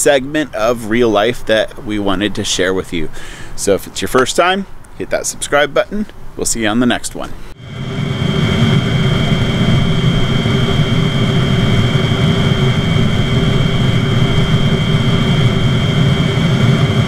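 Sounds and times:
blower whine: 7.5s - 17.0s
heater burner rushing: 7.5s - 17.0s
low hum: 7.5s - 17.0s.

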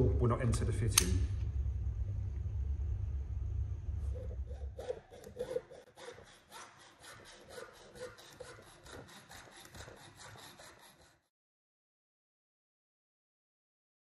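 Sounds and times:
low steady hum: 0.0s - 5.5s
hacksaw cutting metal pipe: 4.2s - 11.3s.

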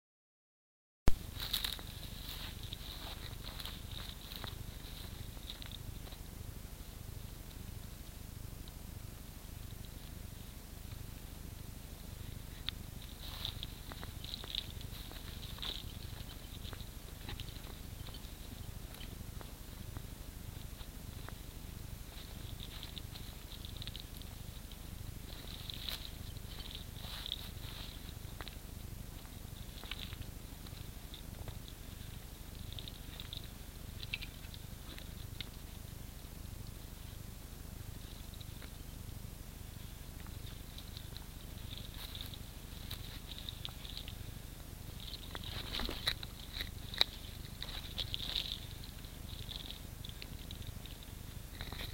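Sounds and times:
birds chirping: 1.1s - 51.9s.

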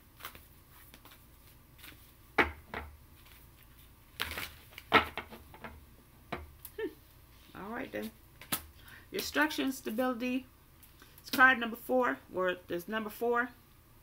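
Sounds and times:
cards tapping and flicking: 8.4s - 8.7s.

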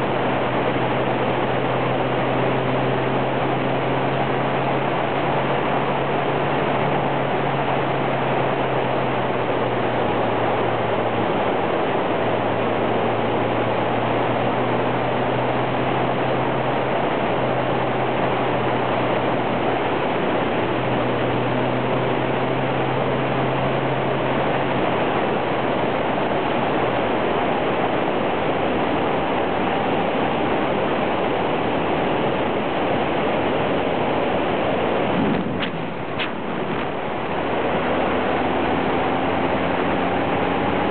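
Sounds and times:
road noise: 0.0s - 40.9s
wind rush: 0.0s - 40.9s
motorcycle engine hum: 30.2s - 40.9s.

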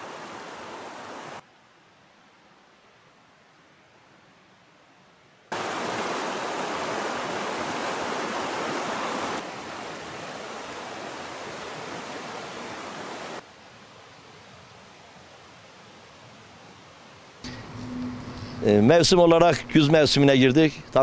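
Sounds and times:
stream rushing over rocks: 0.0s - 1.4s, 5.5s - 17.9s
faint outdoor hiss: 0.0s - 21.0s.

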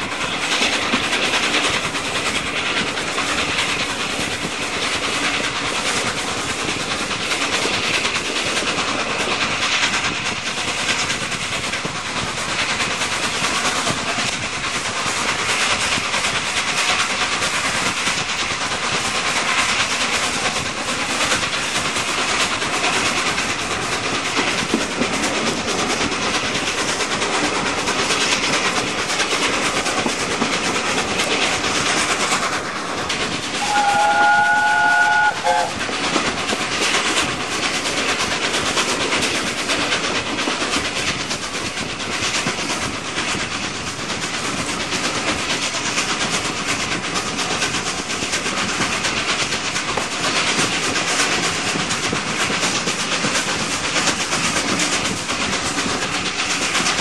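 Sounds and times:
train wheel clatter: 0.0s - 57.0s
wind rush: 0.0s - 57.0s
steam whistle: 33.6s - 35.8s.

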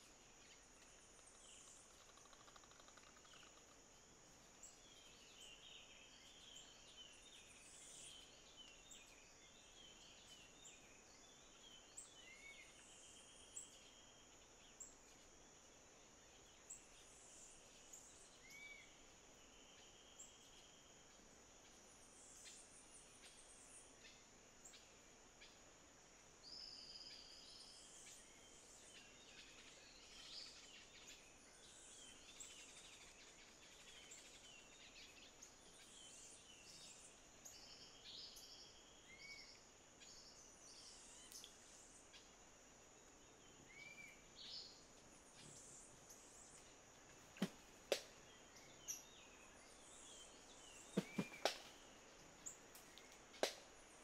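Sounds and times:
small birds chirping and calling: 47.4s - 53.6s.

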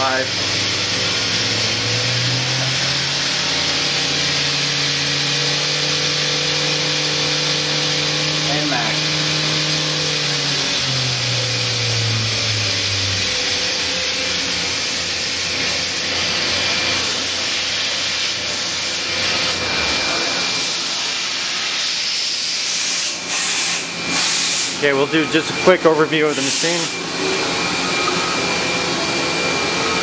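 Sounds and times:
machine spindle hum: 0.0s - 16.3s, 26.8s - 30.0s.

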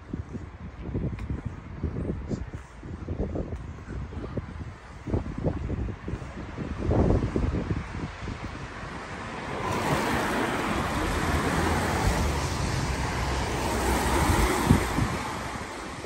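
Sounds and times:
wind rumbling on microphone: 0.0s - 16.0s
tyres hissing on wet road: 8.9s - 16.0s.

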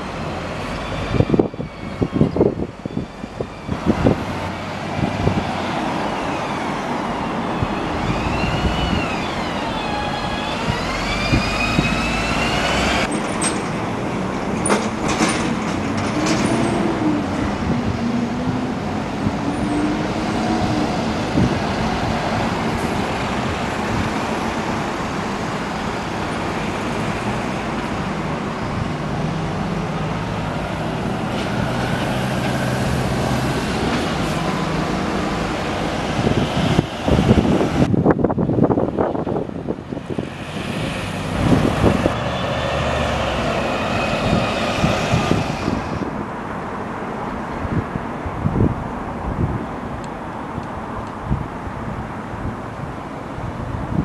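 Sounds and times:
diesel bus engines rumbling: 0.0s - 54.0s
road traffic passing: 0.0s - 54.0s
whining tone: 6.0s - 13.1s.

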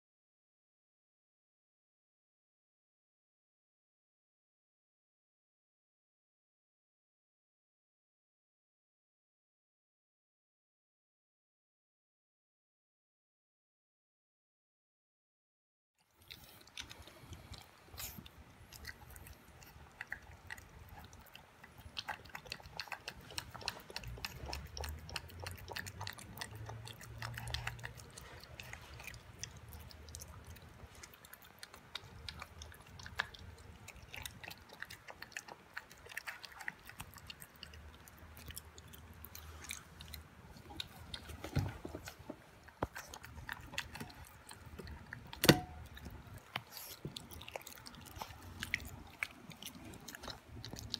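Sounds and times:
puppy chewing from metal bowl: 16.2s - 50.9s.

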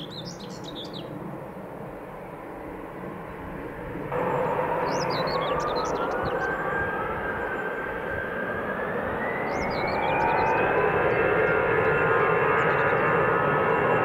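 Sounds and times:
small birds chirping: 0.0s - 1.2s, 4.3s - 7.7s, 9.2s - 13.2s
jet engines spooling up: 1.1s - 14.0s.

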